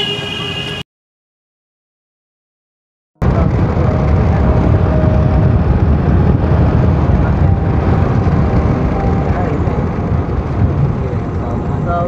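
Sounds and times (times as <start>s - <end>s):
car road and wind noise: 3.2s - 12.0s
wind buffeting microphone: 3.2s - 12.0s.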